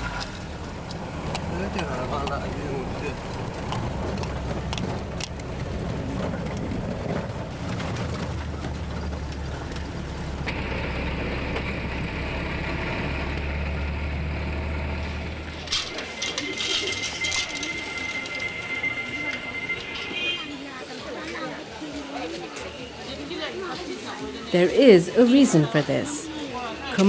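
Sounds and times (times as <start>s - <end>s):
vehicle engine and road rumble: 0.0s - 20.7s
sharp clicks and clatter: 0.2s - 10.7s.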